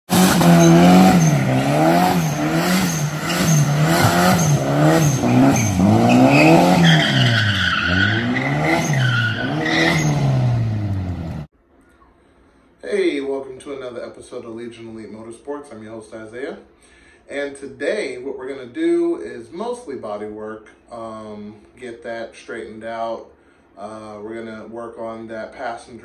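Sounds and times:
tyres squealing and skidding: 0:00.1 - 0:10.9
car engine revving hard: 0:00.1 - 0:11.5.

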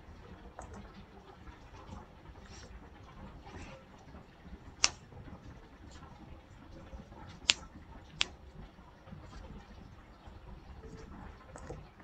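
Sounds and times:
computer mouse clicks: 0:04.8 - 0:05.0, 0:07.4 - 0:08.4.

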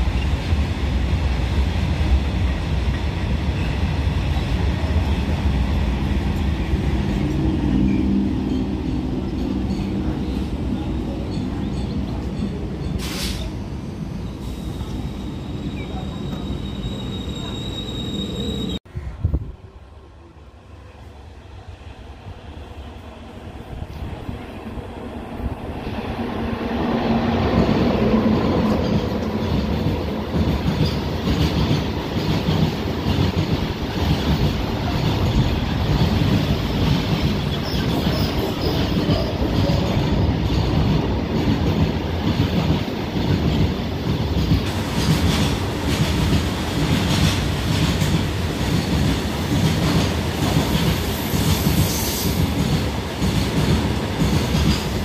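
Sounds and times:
electric locomotive passing: 0:00.0 - 0:55.0
train wagons rumbling: 0:01.8 - 0:18.8, 0:25.8 - 0:55.0
high wheel squeal: 0:14.3 - 0:18.8.

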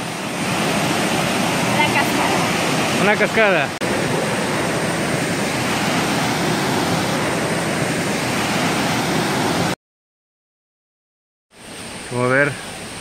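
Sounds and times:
waterfall rushing over boulders: 0:00.0 - 0:09.8.

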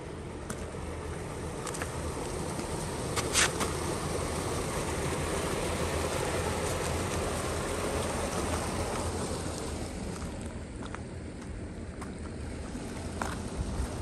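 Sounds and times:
stream rushing: 0:00.1 - 0:10.6
footsteps crunching on stones: 0:10.1 - 0:14.0
wind noise on microphone: 0:13.2 - 0:14.0.

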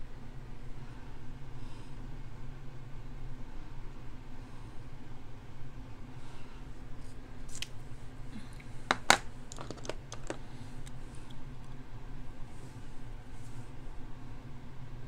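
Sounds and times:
steady low hum: 0:00.0 - 0:15.0
small clicks of makeup items: 0:08.9 - 0:11.0.

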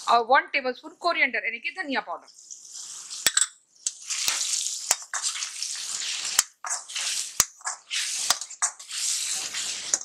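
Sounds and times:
metal spatula scraping a pan: 0:02.3 - 0:10.0.

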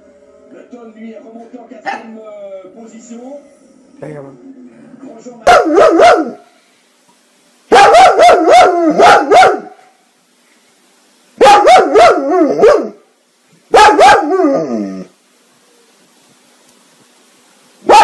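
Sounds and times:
dog barking: 0:01.9 - 0:02.1, 0:05.5 - 0:06.4, 0:07.7 - 0:09.9, 0:11.4 - 0:13.0, 0:13.7 - 0:14.7
dog whining: 0:13.8 - 0:15.1.

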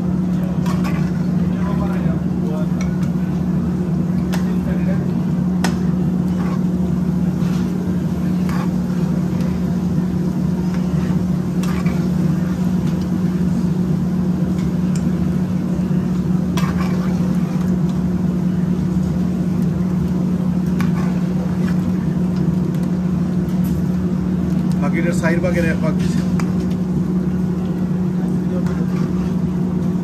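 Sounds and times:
ladle stirring thick curry: 0:00.0 - 0:23.5, 0:25.9 - 0:30.0
low mechanical hum: 0:00.0 - 0:30.0
ladle scraping metal pan: 0:00.5 - 0:01.7.

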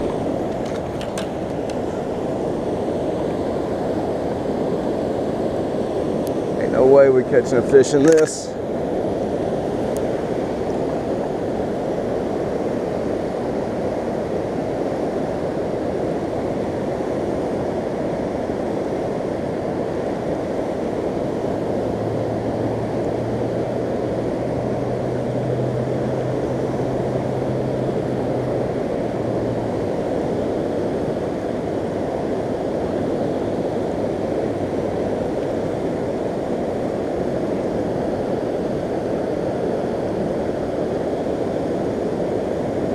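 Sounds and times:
flooded river rushing: 0:20.9 - 0:42.2.

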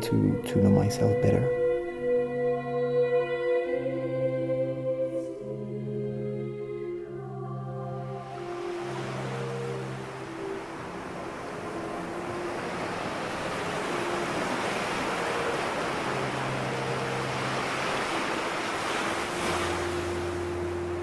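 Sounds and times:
ambient drone tones: 0:00.0 - 0:21.0
sea surf breaking: 0:08.2 - 0:21.0.

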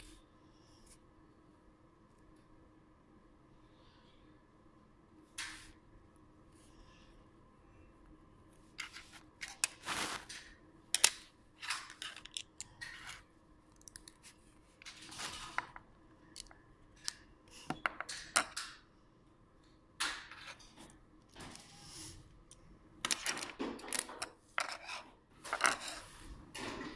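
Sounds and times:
plastic bricks clicking and snapping: 0:10.3 - 0:13.1.

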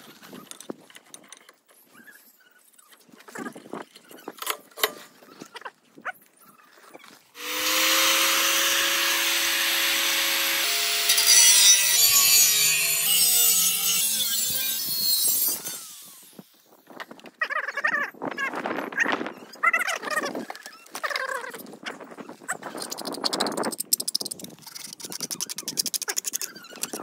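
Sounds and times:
power tool cutting wood: 0:07.4 - 0:16.6.

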